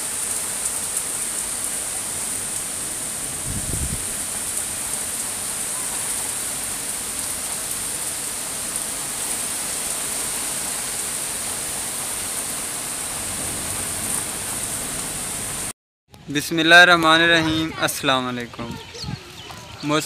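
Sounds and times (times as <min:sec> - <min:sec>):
heavy rain pouring: 0:00.0 - 0:15.7.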